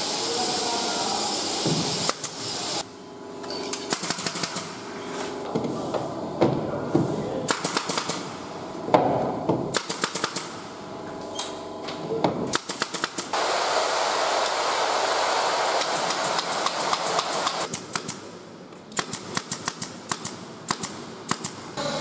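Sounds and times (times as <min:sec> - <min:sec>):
steady air hiss: 0:00.0 - 0:02.9
nail gun firing into plywood: 0:03.9 - 0:04.8, 0:07.5 - 0:08.3, 0:09.0 - 0:10.6, 0:12.5 - 0:13.4, 0:15.8 - 0:18.2, 0:18.9 - 0:21.6.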